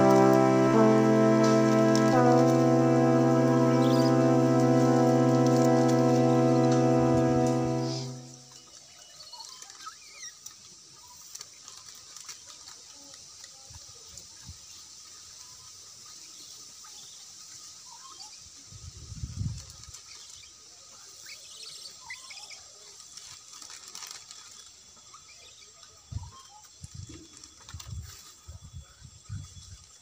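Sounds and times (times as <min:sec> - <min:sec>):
birds chirping: 0:00.0 - 0:08.7
steady high hiss: 0:00.0 - 0:08.7.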